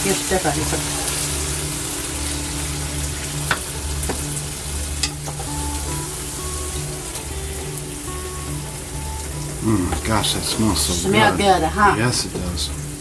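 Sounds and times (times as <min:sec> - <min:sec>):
food sizzling in a pot: 0:00.0 - 0:13.0.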